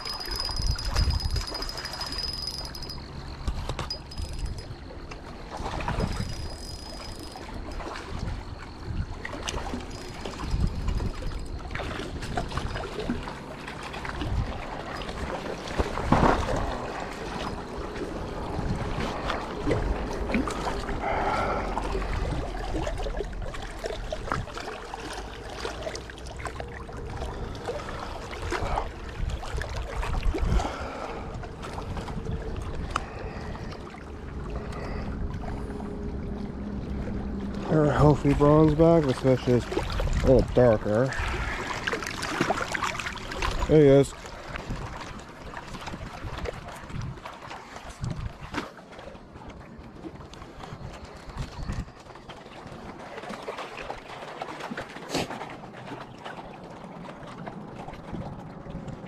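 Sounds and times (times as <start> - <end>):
wind buffeting microphone: 0.0 - 1.7, 5.6 - 13.3, 14.1 - 24.7, 26.6 - 48.6, 49.9 - 53.0
water sounds: 0.0 - 59.0.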